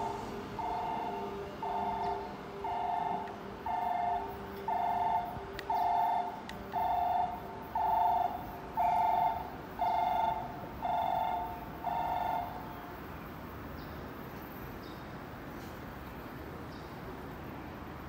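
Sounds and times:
railway warning alarm: 0.0 - 13.8.

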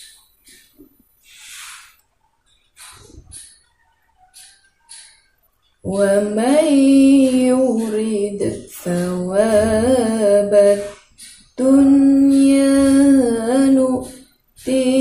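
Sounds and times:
woman reciting melodically: 5.8 - 15.0.

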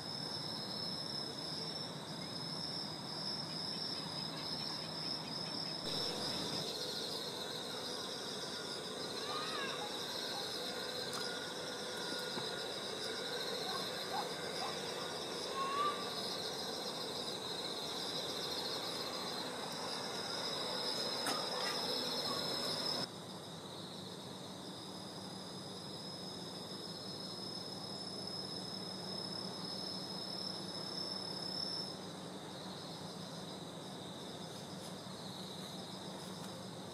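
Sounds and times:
crickets trilling: 0.0 - 36.9
thin steady high note: 5.8 - 23.1.

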